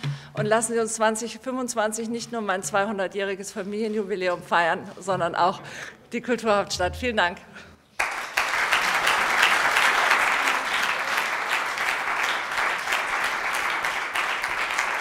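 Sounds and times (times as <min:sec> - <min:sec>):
audience applauding: 0:08.0 - 0:15.0.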